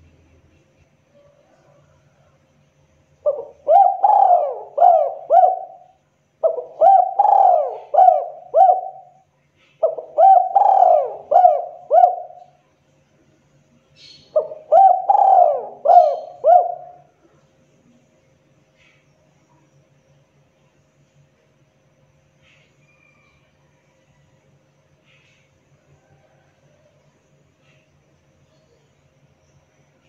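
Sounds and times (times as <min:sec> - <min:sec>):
dove cooing: 0:03.2 - 0:12.6, 0:14.3 - 0:17.1.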